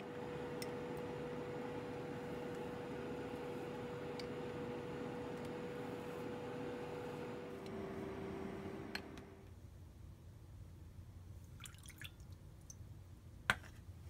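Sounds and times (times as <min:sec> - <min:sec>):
faint steady hum: 0:00.0 - 0:14.0
water trickling into bowl: 0:11.6 - 0:12.3.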